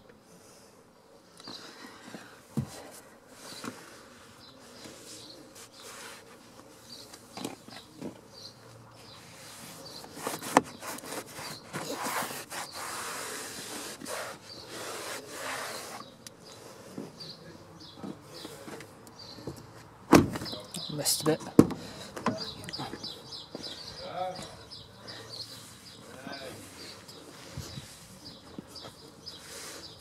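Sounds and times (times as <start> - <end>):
cloth wiping car trim: 9.0 - 16.1.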